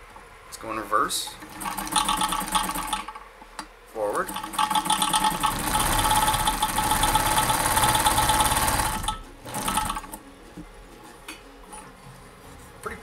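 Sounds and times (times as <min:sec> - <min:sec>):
sewing machine running: 0:01.4 - 0:03.2, 0:04.2 - 0:10.2.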